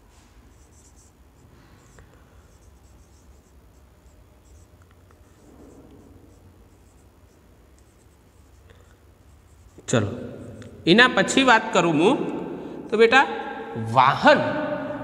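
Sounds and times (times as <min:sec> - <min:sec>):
marker squeaking on whiteboard: 0:00.5 - 0:10.8.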